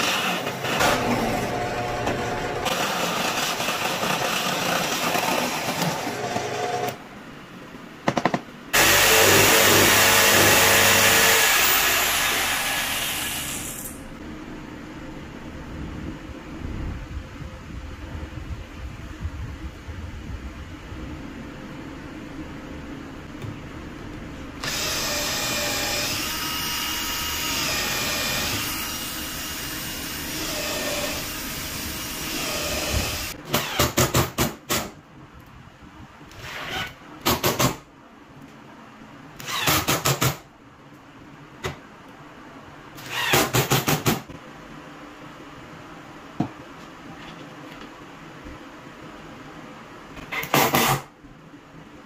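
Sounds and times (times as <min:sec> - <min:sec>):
drill driving screws into wood: 0:00.0 - 0:07.0, 0:08.8 - 0:14.0, 0:24.6 - 0:34.9, 0:39.4 - 0:40.4, 0:43.0 - 0:44.2, 0:50.3 - 0:51.1.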